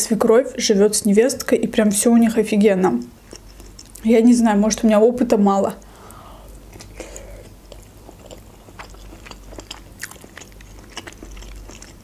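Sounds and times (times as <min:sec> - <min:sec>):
chewing broccoli crunches: 0:06.7 - 0:12.0.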